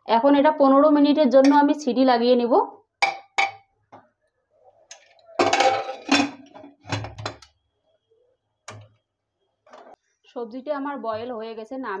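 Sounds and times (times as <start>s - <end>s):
pot lid clanking: 5.4s - 7.5s.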